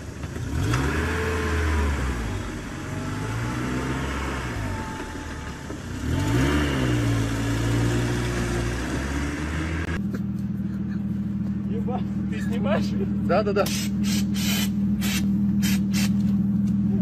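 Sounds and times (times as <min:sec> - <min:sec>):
car engine revving: 0:00.0 - 0:10.2.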